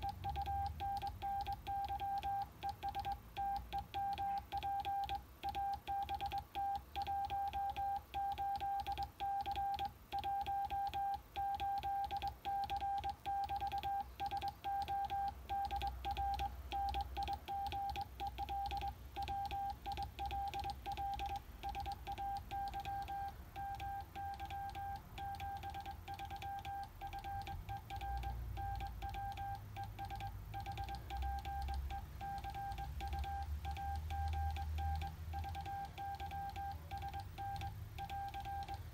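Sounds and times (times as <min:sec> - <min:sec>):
morse code beeps: 0:00.0 - 0:38.9.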